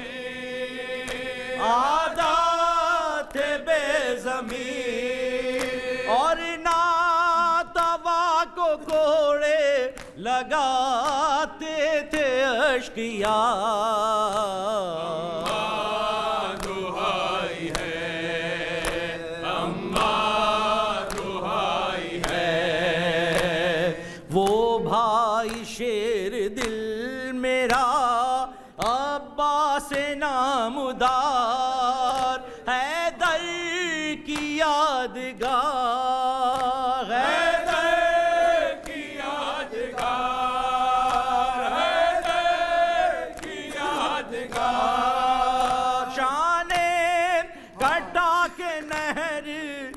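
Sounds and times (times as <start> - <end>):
hands slapping chests: 1.0 - 7.0, 8.8 - 9.3, 9.9 - 10.2, 11.0 - 11.4, 15.3 - 24.7, 25.4 - 25.8, 26.6 - 26.9, 32.0 - 32.5, 34.3 - 34.6, 35.4 - 47.0, 47.7 - 49.3
man chanting a lament: 1.4 - 49.9.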